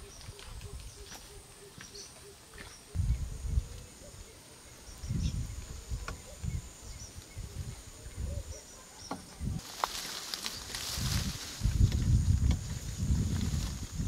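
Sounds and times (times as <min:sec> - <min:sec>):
faint bird chirps: 0:00.0 - 0:09.6.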